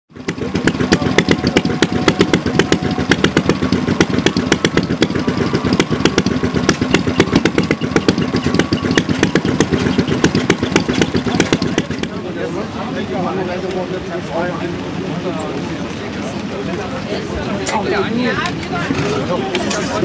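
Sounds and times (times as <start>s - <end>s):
stationary engine clattering: 0.1s - 12.8s.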